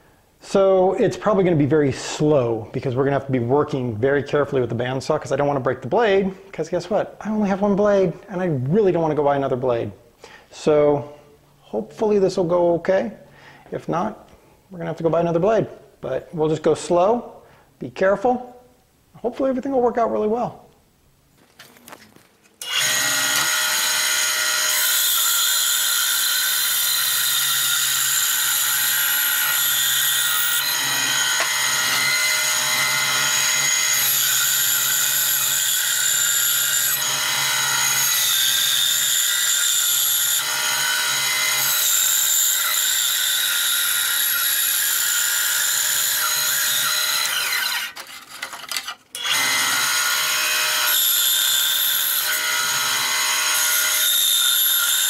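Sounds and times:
bandsaw cutting wood: 22.6 - 55.0.

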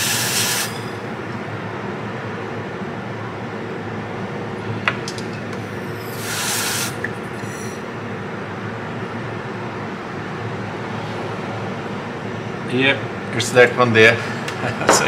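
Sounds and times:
aerosol spray hiss: 0.0 - 0.7, 6.2 - 7.0
steady background noise: 0.0 - 15.0.

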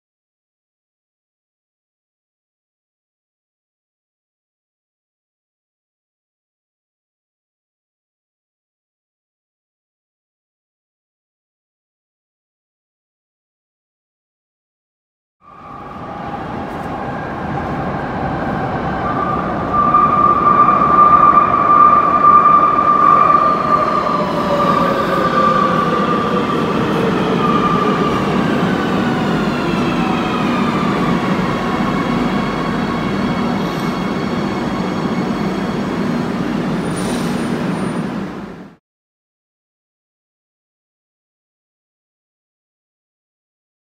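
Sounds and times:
train wheel and motor noise: 15.5 - 38.8.

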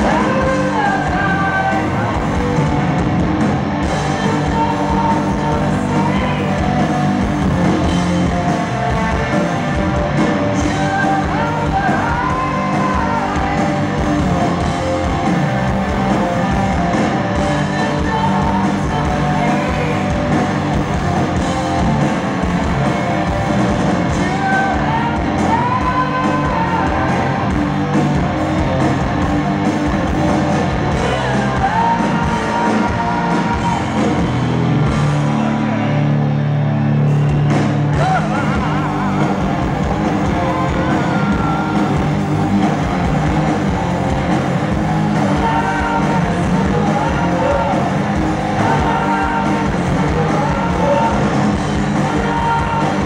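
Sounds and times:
man singing: 0.0 - 2.5, 4.0 - 7.3, 10.5 - 14.0, 17.4 - 20.4, 24.1 - 27.4, 30.9 - 34.1, 37.9 - 39.4, 45.1 - 53.0
live rock band: 0.0 - 53.0.

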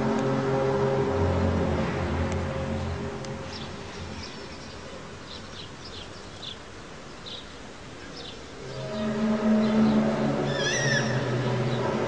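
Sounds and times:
low droning hum: 0.0 - 5.7
wavering wailing tone: 8.8 - 12.0.

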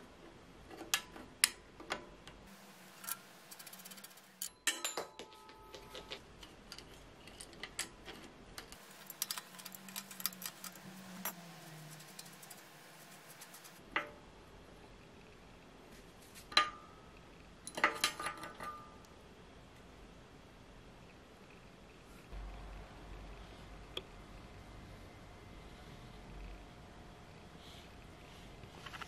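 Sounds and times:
tools clinking against metal: 3.0 - 7.8.

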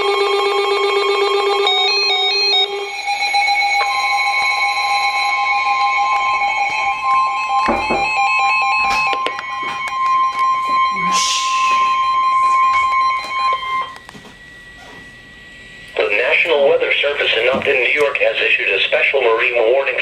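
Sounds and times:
weather radio alarm tones: 0.0 - 20.0
knocks: 7.7 - 8.2.

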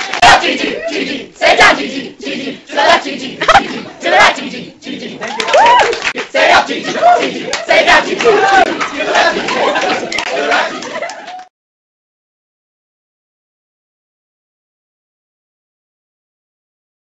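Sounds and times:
people shouting: 0.0 - 11.4.

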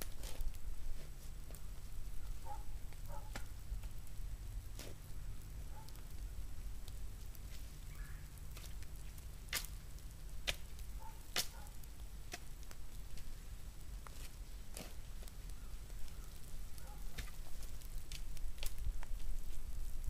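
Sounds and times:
shovel chopping and scraping soil: 0.0 - 1.1, 3.2 - 4.0, 4.7 - 5.0, 9.5 - 9.7, 10.4 - 10.7, 11.3 - 11.7, 12.3 - 12.5, 14.1 - 15.0, 17.1 - 17.4
low steady rumble: 0.0 - 20.0.

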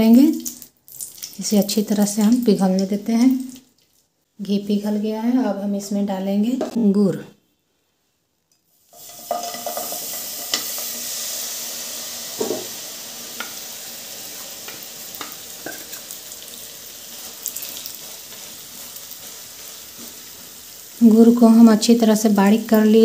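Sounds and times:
sugar sizzling in hot fat: 8.7 - 23.0.

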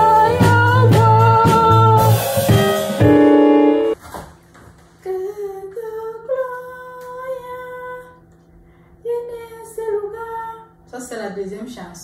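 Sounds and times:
woman singing unaccompanied: 0.0 - 2.7, 5.0 - 8.2, 9.0 - 10.8.

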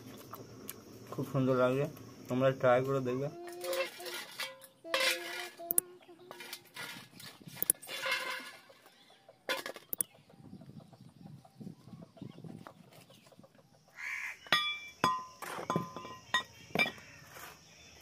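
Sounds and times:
sharp metallic clinks: 14.5 - 17.0.

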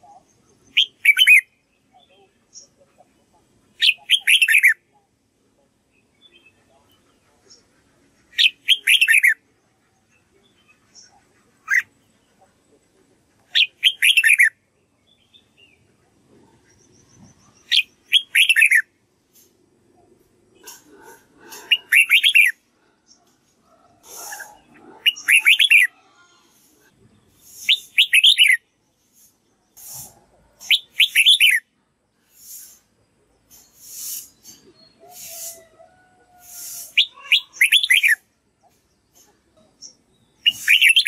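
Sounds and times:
bulbul singing: 0.0 - 5.2, 8.3 - 12.3, 13.5 - 15.9, 16.5 - 19.0, 20.5 - 23.4, 24.0 - 25.9, 27.4 - 31.7, 36.4 - 41.0.

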